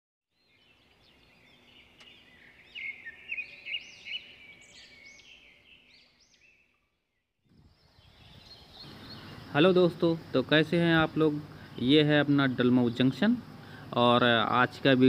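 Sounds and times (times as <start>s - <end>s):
high bird-like chirps: 0.5s - 7.0s
faint steady hum: 8.9s - 15.0s.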